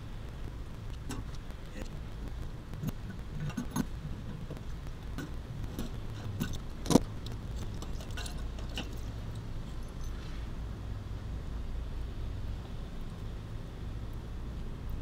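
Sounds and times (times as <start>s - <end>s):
steady low hum: 0.0s - 15.0s
metal tools clinking on valve: 7.7s - 10.2s.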